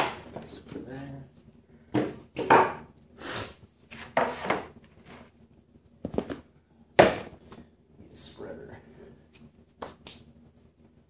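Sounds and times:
boards knocking and clattering: 1.9s - 2.8s.

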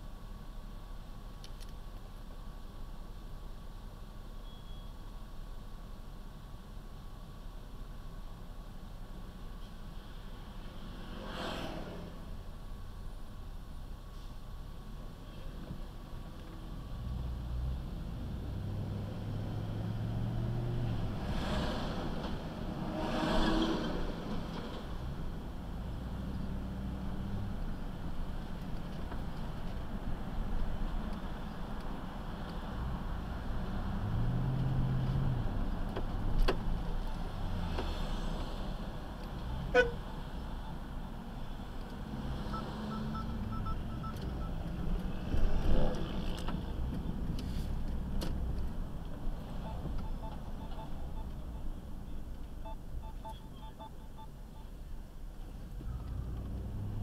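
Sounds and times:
engine and road noise: 0.0s - 57.0s
vehicle engine hum: 5.0s - 57.0s
short high beeps: 39.5s - 40.8s, 42.5s - 44.6s, 49.6s - 51.8s, 52.6s - 54.8s.

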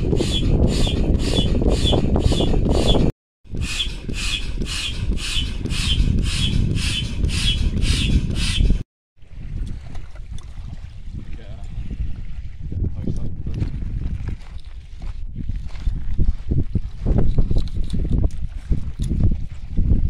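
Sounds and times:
foot pump squeaky hissing strokes: 0.0s - 8.8s.

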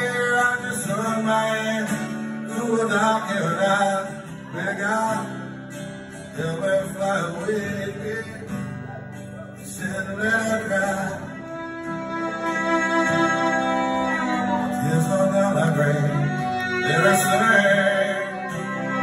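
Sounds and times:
acoustic guitar strumming: 0.0s - 19.0s
melodic instrumental line: 11.3s - 19.0s.

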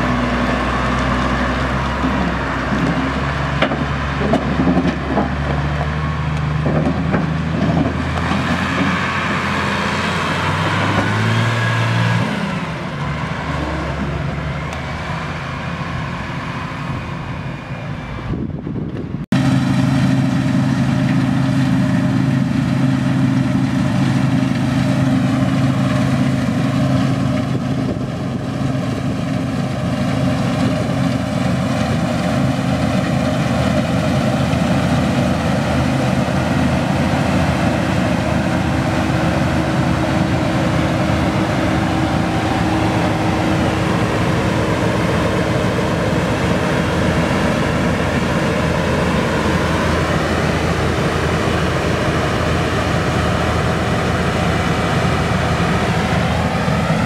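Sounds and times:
combine harvester engine drone: 0.0s - 57.0s.

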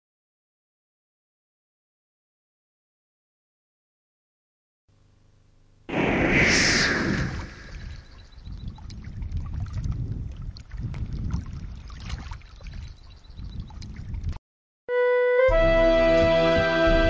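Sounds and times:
underwater rumbling: 5.9s - 14.4s.

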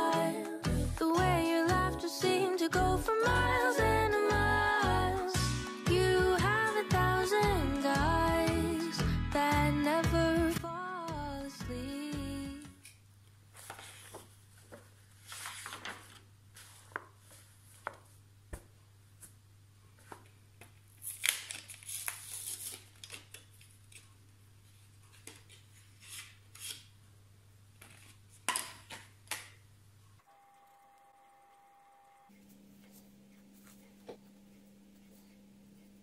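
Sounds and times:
paper crinkling: 13.5s - 18.2s, 20.0s - 24.2s
pages turning and rustling: 13.5s - 19.4s, 20.0s - 24.2s, 25.1s - 26.9s, 27.8s - 29.5s.

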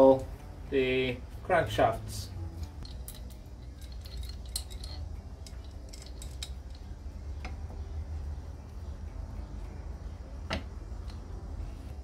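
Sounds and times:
light metallic clicks and clinks: 2.5s - 7.8s.

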